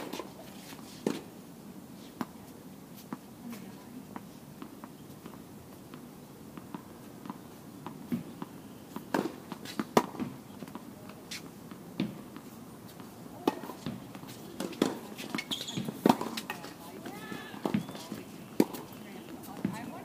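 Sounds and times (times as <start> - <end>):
tennis ball bouncing on court: 6.6 - 20.0
tennis ball struck by rackets: 9.0 - 12.2, 13.4 - 20.0.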